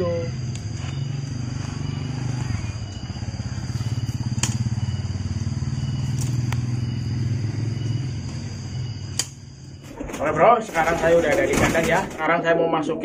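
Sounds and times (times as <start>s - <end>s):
engine running at low revs: 0.0s - 9.9s
sharp clicks of cage: 4.3s - 4.7s, 9.1s - 9.4s.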